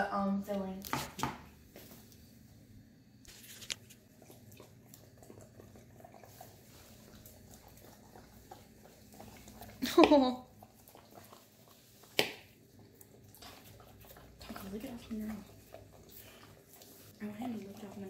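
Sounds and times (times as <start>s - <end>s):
dogs licking: 3.9s - 18.0s.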